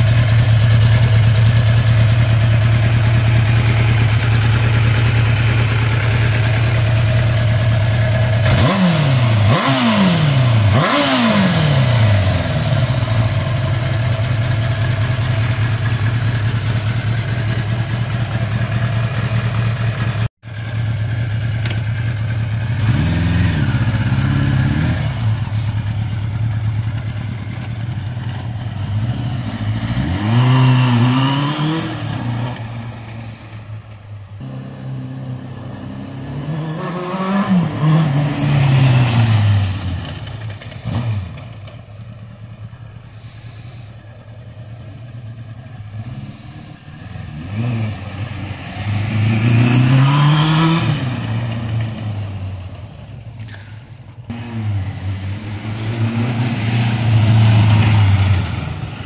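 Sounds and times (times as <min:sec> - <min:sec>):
motorcycle engine idling and revving: 0:00.0 - 0:59.0.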